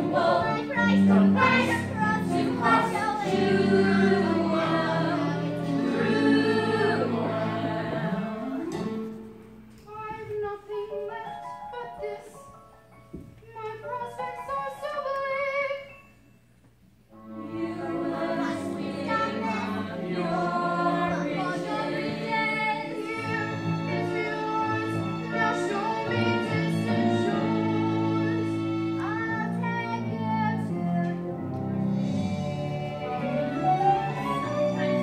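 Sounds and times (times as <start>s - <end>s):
cast singing together: 0.0s - 8.8s, 17.4s - 28.6s.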